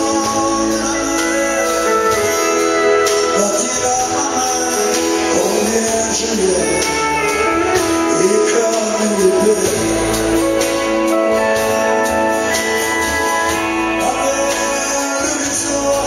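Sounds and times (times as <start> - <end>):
live country band playing: 0.0 - 16.0.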